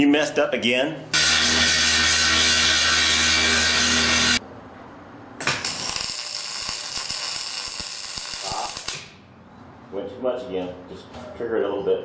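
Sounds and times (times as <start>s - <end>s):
angle grinder grinding steel: 1.2s - 4.4s
welder arc crackling: 5.4s - 9.2s.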